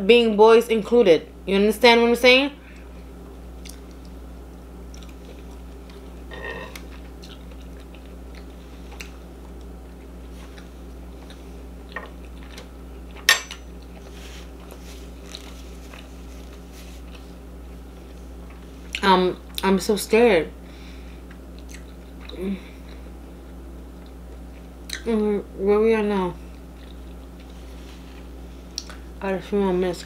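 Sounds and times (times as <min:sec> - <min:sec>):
wet chewing: 0:06.7 - 0:17.4
small mouth clicks: 0:28.7 - 0:29.0.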